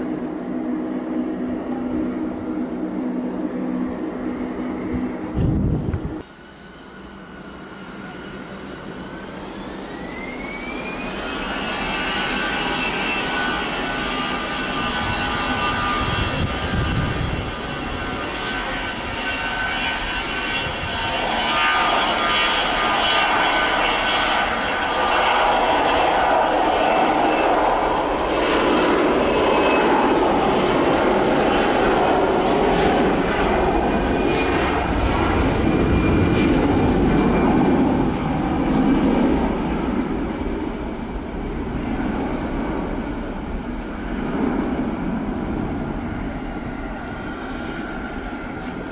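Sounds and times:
jet engines spooling up: 0.0 - 48.9
jet takeoff roll: 0.0 - 48.9.

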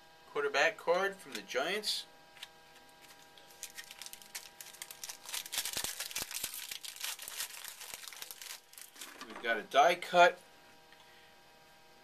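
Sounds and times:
wrapper tearing and crinkling: 3.0 - 9.3.

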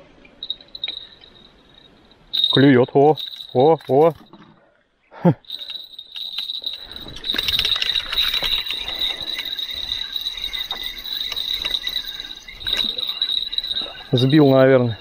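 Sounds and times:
insect chirring: 0.4 - 3.6, 5.5 - 15.0
quick clicks and rattles: 5.6 - 14.0.

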